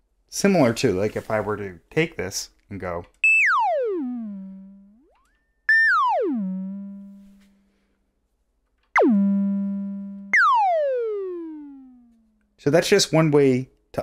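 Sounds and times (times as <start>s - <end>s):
synthesizer tones sliding down: 3.4s - 5.0s, 5.7s - 7.5s, 9.0s - 12.2s.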